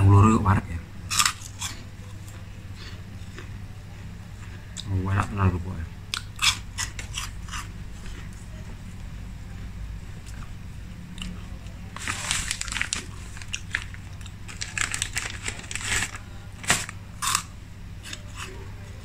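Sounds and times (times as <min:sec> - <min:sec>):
steady low hum: 0:00.0 - 0:19.0
snack food crunching: 0:01.1 - 0:05.3, 0:06.1 - 0:08.5, 0:10.2 - 0:18.6.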